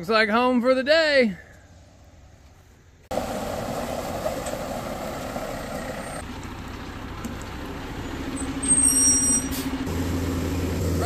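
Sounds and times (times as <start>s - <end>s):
diesel truck engine running: 3.1s - 11.0s.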